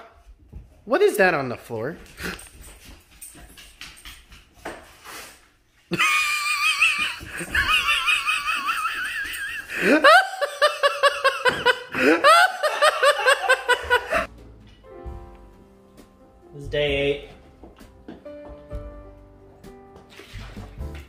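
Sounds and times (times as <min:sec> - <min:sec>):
high-pitched laughter: 0:05.9 - 0:14.3.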